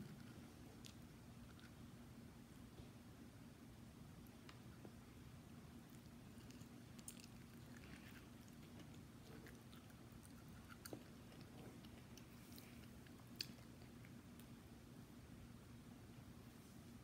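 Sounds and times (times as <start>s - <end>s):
low steady hum: 0.0s - 17.0s
chewing crunchy snack: 5.9s - 14.5s.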